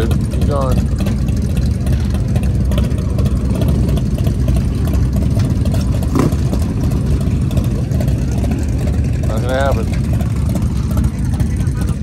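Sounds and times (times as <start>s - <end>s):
motorcycle engine running rough: 0.0s - 12.0s.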